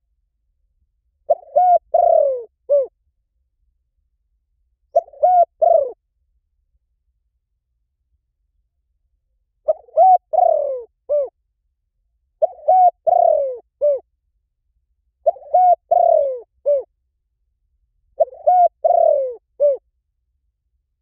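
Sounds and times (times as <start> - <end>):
dove cooing: 1.3 - 2.9, 4.9 - 6.0, 9.6 - 11.3, 12.4 - 14.0, 15.2 - 16.9, 18.2 - 19.8.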